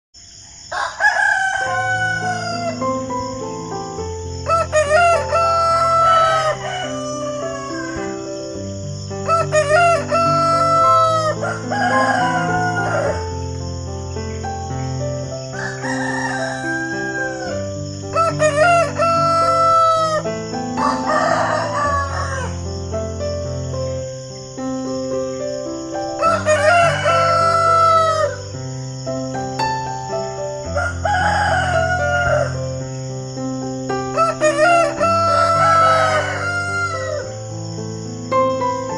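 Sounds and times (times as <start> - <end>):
rooster crowing: 0.6 - 3.7, 4.3 - 13.5, 15.4 - 22.9, 26.1 - 28.5, 30.6 - 33.0, 34.1 - 37.8.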